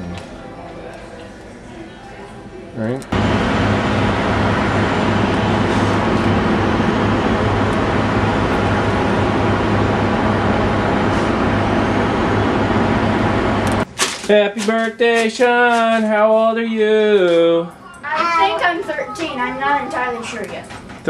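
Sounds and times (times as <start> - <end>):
street traffic drone: 3.1 - 13.9.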